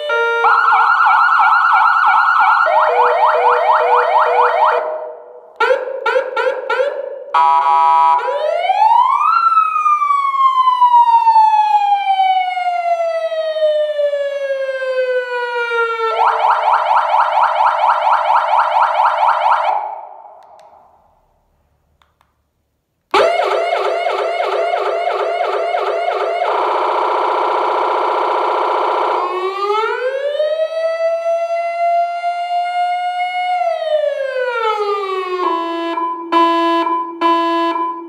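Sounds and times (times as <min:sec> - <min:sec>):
electronic siren tones: 0:00.1 - 0:05.0, 0:23.2 - 0:30.0.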